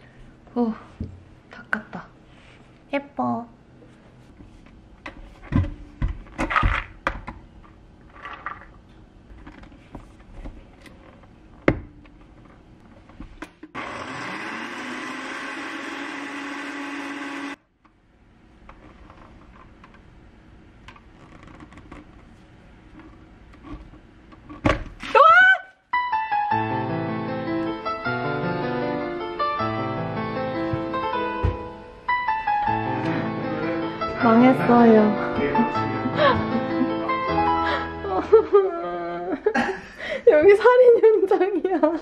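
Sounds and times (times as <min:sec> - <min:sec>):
blender motor whine: 0:13.8 - 0:17.6.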